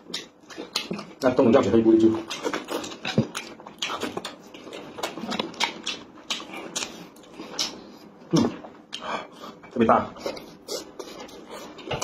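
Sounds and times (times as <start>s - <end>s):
wet chewing and lip-smacking: 0.0s - 9.1s.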